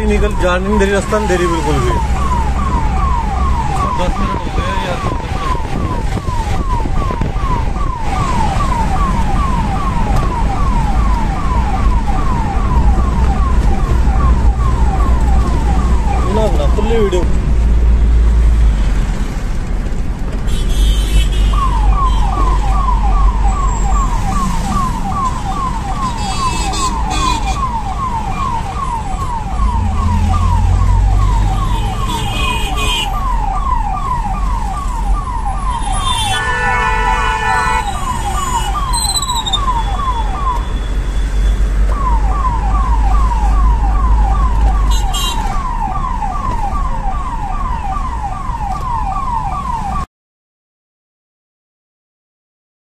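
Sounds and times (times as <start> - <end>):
ambulance siren yelping: 0.0 - 17.2, 21.5 - 41.2, 41.8 - 50.1
engine and traffic rumble: 0.0 - 50.1
vehicle horn: 20.5 - 22.2, 26.1 - 27.6, 31.6 - 33.2, 35.8 - 39.2, 44.9 - 45.4.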